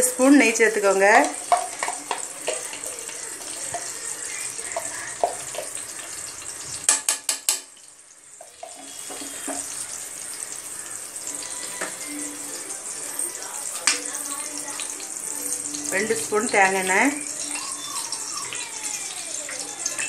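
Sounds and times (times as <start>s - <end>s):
ghee sizzling in a pot: 0.0s - 20.0s.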